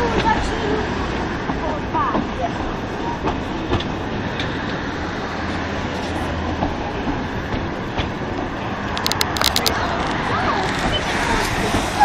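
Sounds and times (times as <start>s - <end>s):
train coaches rumbling: 0.0s - 12.0s
wheel clicks on rails: 6.6s - 11.9s.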